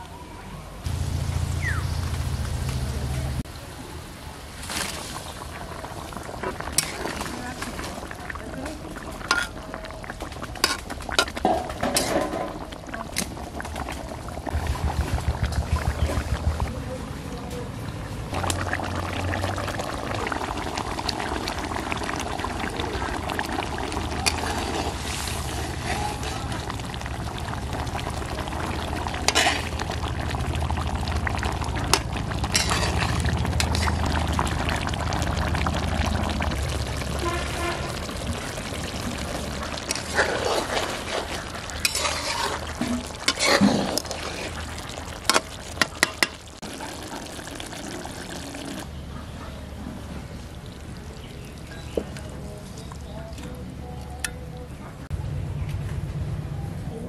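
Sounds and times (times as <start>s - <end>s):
curry simmering in a pan: 4.8s - 16.7s, 17.9s - 49.0s, 50.2s - 53.6s
metal spatula scraping: 32.5s - 34.0s, 39.9s - 44.6s.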